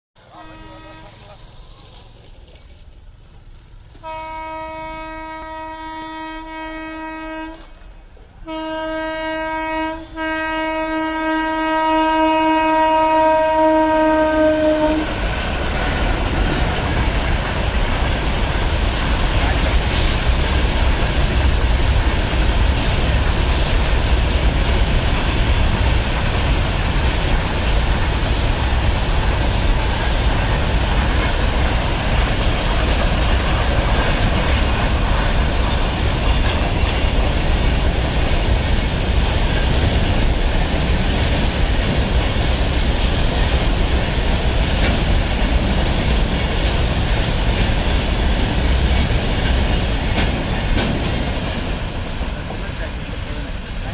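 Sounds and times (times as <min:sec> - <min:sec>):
train wheels rumbling on rails: 0:00.2 - 0:53.9.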